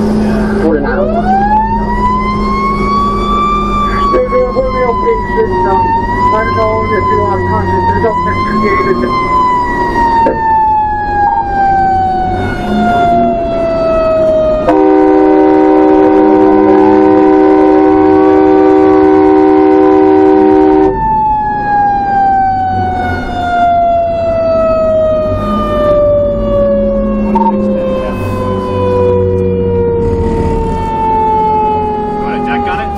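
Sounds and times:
mechanical siren winding down: 0.0 - 32.9
road noise: 0.0 - 32.9
truck engine rumble: 0.0 - 32.9
fire truck air horn: 14.7 - 21.0.

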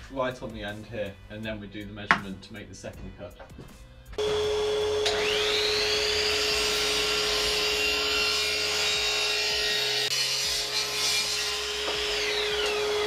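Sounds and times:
dust extractor humming: 4.2 - 9.6, 10.6 - 13.0
mitre saw cutting wood: 4.2 - 13.0.

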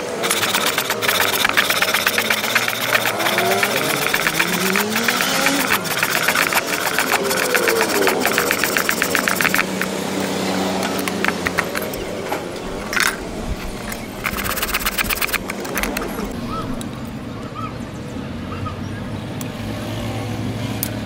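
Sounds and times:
engine running: 0.0 - 17.2
hacksaw rasping through metal: 0.2 - 16.4.

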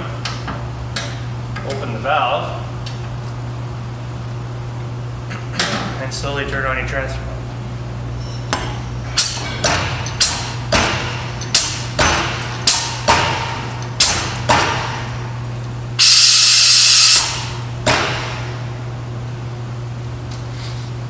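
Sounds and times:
loud steady air hiss: 16.0 - 18.3.

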